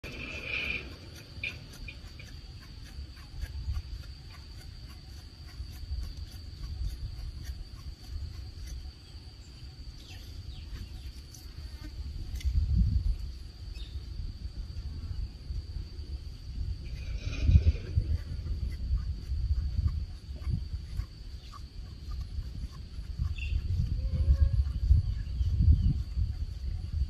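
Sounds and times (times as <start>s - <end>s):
insects droning: 0.0s - 27.0s
low rumbling noise: 12.6s - 20.7s.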